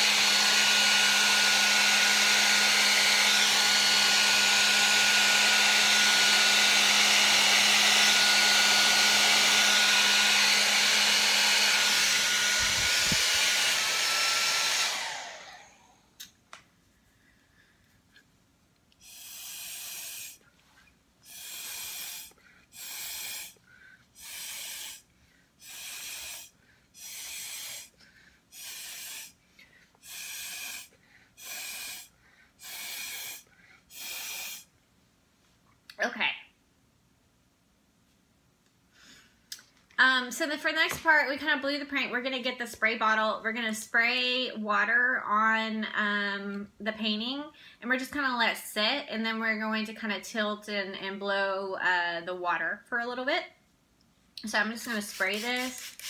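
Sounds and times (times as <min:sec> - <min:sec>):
hair dryer blowing: 0:00.0 - 0:16.2, 0:19.0 - 0:20.4, 0:21.2 - 0:29.4, 0:30.0 - 0:34.7, 0:40.0 - 0:43.3, 0:54.4 - 0:56.0
puffs of breath through straw: 0:19.0 - 0:20.4, 0:21.3 - 0:25.0.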